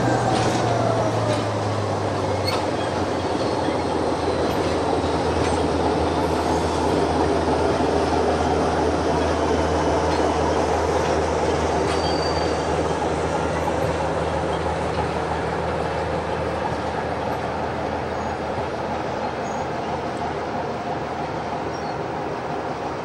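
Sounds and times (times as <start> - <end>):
diesel locomotive engine drone: 0.0 - 23.0
wheels rumbling on rail: 0.0 - 23.0
faint wheel squeal: 2.2 - 4.8, 11.8 - 13.0, 19.3 - 20.0.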